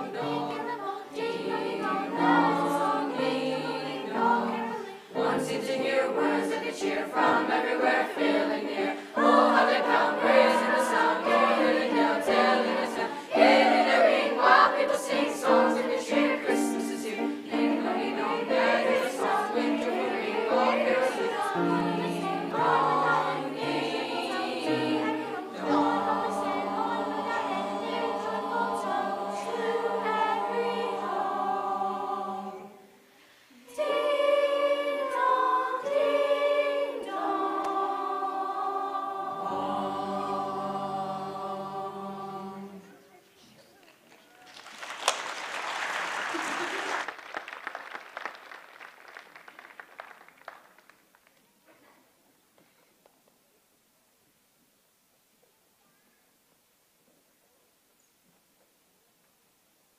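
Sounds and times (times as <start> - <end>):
children's choir singing: 0.0 - 43.2.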